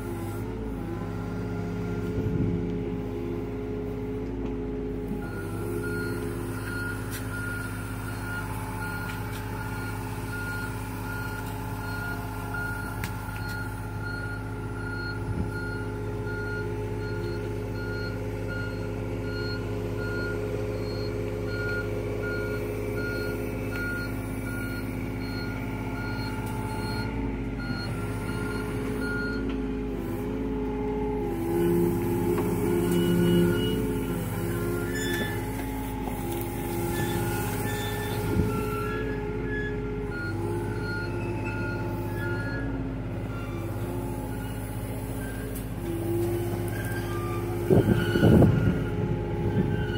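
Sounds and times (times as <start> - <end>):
excavator diesel engine running: 0.0 - 49.9
travel alarm beeping: 5.3 - 29.5, 32.3 - 35.5, 39.6 - 42.7, 46.8 - 49.9.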